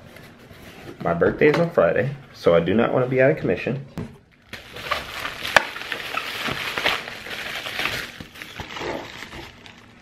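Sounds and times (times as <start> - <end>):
bubble wrap crinkling: 4.3 - 10.0.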